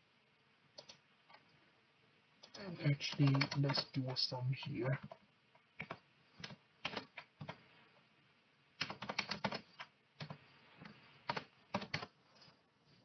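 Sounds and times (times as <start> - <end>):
computer keyboard typing: 0.8 - 1.0, 2.4 - 3.9, 5.8 - 7.6, 8.8 - 12.1.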